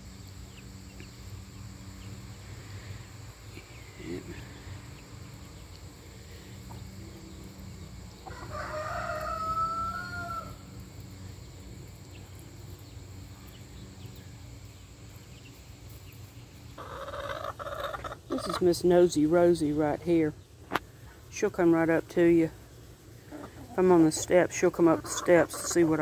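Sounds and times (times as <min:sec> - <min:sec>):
rooster crowing: 0:08.2 - 0:10.7.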